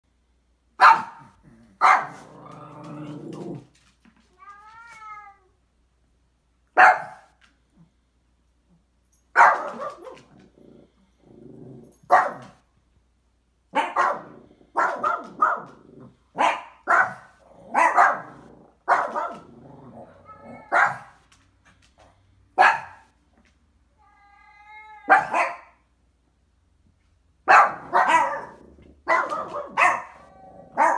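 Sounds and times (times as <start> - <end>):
small dog barking: 0.8 - 2.4, 6.8 - 7.4, 9.3 - 10.4, 12.1 - 12.6, 13.7 - 19.6, 20.2 - 21.2, 22.6 - 23.1, 25.1 - 25.8, 27.4 - 30.9.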